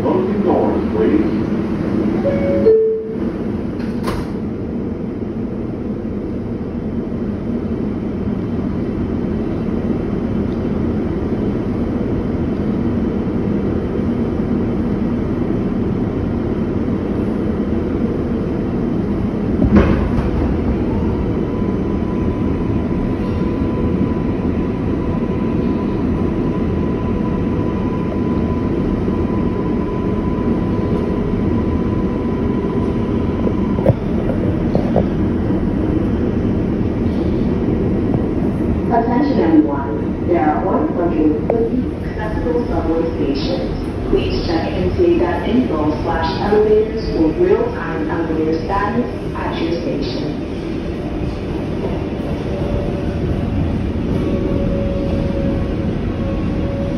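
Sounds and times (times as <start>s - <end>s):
subway train rumbling: 0.0s - 56.9s.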